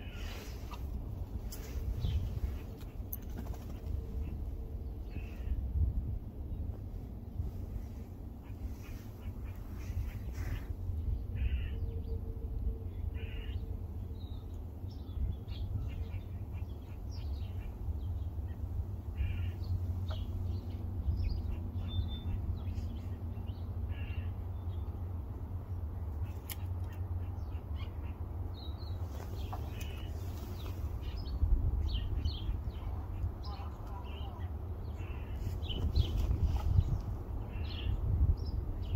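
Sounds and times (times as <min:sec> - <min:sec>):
steady low rumble: 0:00.0 - 0:38.9
crow cawing: 0:11.4 - 0:11.8.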